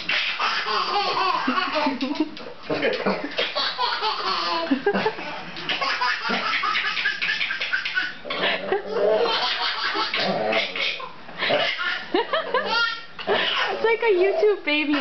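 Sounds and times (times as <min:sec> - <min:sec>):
baby laughing: 0:00.0 - 0:13.9
people laughing: 0:01.5 - 0:03.4, 0:11.4 - 0:12.8.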